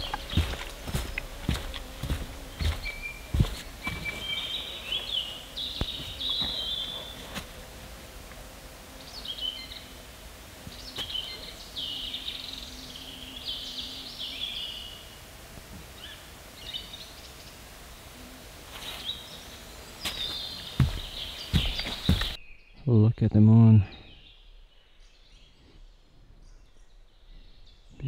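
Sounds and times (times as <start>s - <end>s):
footsteps: 0.0s - 5.2s, 5.8s - 8.4s, 20.0s - 22.4s
songbird singing: 0.0s - 18.1s, 18.7s - 28.0s.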